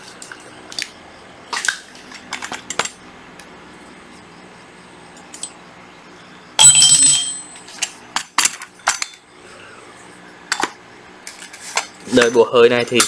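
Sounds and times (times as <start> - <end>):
drill bit clanking on tile floor: 6.6 - 7.6.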